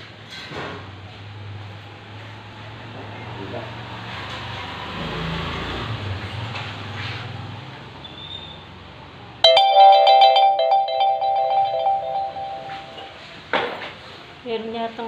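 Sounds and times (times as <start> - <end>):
mobile phone ringtone: 9.4 - 13.1.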